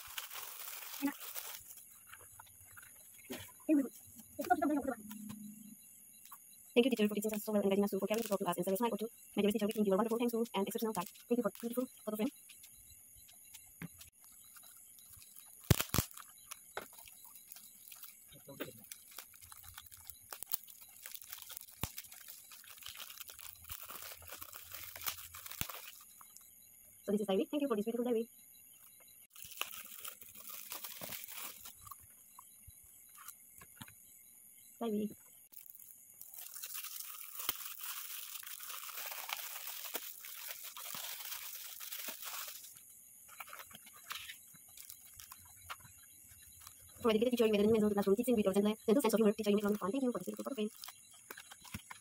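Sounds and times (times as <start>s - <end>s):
metallic gift wrap crinkling: 0.0s - 3.5s, 9.7s - 12.7s, 14.0s - 26.4s, 29.3s - 32.1s, 35.5s - 47.5s, 49.1s - 52.0s.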